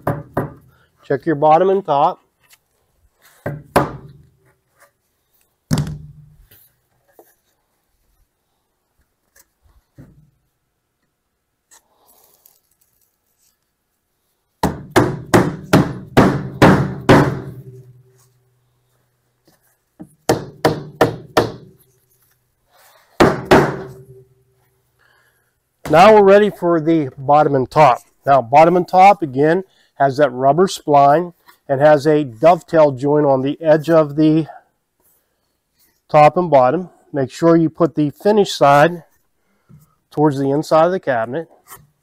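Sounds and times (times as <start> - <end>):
rubber mallet knocking wood: 0.0 - 0.7, 3.4 - 4.3, 5.7 - 6.4, 14.6 - 18.0, 20.0 - 21.8, 23.2 - 24.2.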